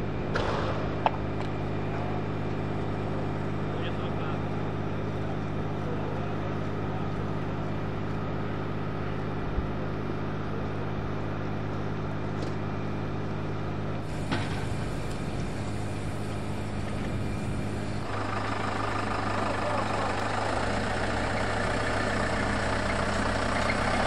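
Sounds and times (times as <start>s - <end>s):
jet engines idling: 0.0s - 24.0s.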